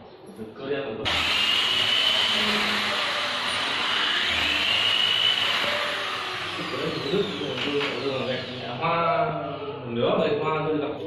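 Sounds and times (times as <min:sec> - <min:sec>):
power tool motor whining: 0:01.1 - 0:08.8.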